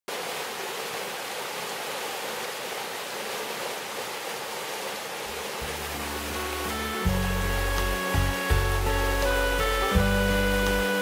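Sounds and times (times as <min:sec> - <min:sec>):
mountain stream rushing over rocks: 0:00.1 - 0:11.0
low music notes: 0:05.6 - 0:11.0.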